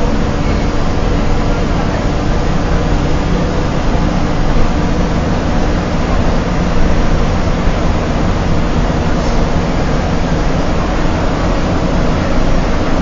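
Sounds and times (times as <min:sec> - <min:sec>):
bus engine drone: 0:00.0 - 0:13.0
tyre rushing hiss: 0:09.1 - 0:09.8.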